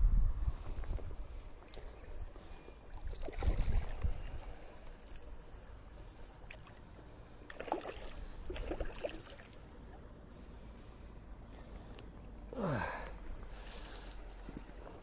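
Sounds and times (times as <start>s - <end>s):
fish splashing in water: 7.4s - 9.6s.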